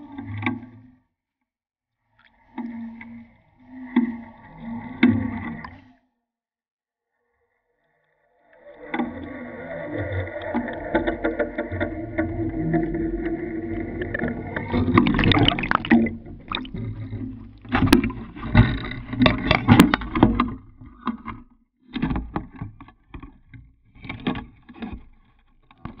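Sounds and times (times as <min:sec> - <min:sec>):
underwater hum: 0:08.5 - 0:20.2
water rushing and splashing: 0:10.5 - 0:18.0
knocks and clicks: 0:14.0 - 0:20.5.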